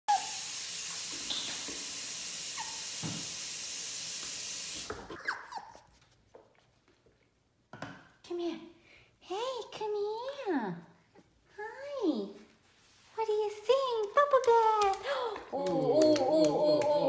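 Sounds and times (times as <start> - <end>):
running water hissing: 0.1 - 5.2
puppy whimpering: 5.1 - 5.9.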